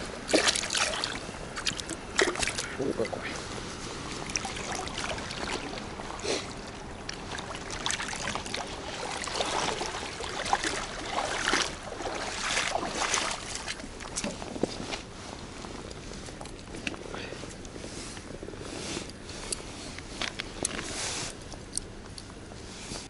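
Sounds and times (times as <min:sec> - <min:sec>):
river water trickling against boat: 0:00.0 - 0:18.4
fish splashing and knocking: 0:00.3 - 0:02.7.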